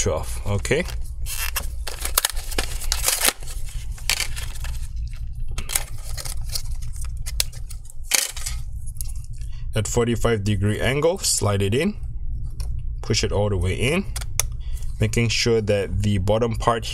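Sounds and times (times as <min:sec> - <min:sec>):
plastic packaging crackling: 0:00.5 - 0:08.6.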